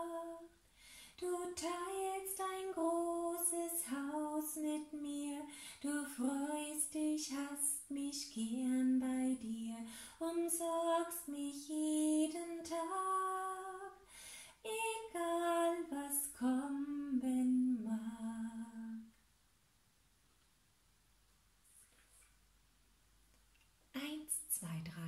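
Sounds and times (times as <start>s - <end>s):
woman singing a hymn unaccompanied: 0.0s - 19.2s.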